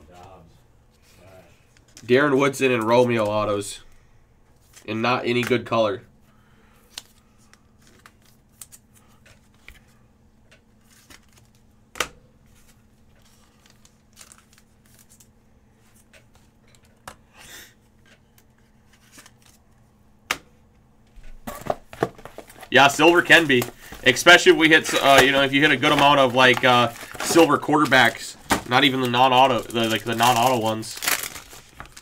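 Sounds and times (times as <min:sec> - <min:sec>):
low steady hum: 0:00.0 - 0:32.0
cards and packaging rustling: 0:06.7 - 0:10.0, 0:10.6 - 0:11.7, 0:12.4 - 0:17.2, 0:17.9 - 0:19.9, 0:21.2 - 0:32.0.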